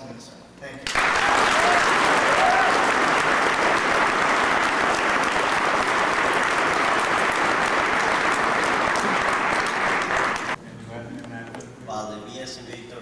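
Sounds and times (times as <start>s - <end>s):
crowd applauding: 0.8s - 10.6s.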